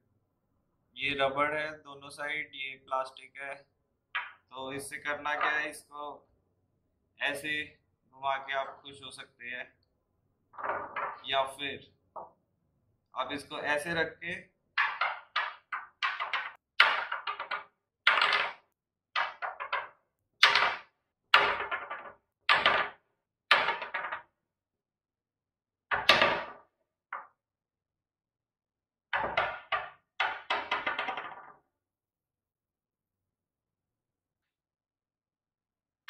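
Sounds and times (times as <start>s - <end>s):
plastic roller knocking on wooden table: 10.6s - 11.2s, 14.8s - 24.3s, 29.1s - 31.6s.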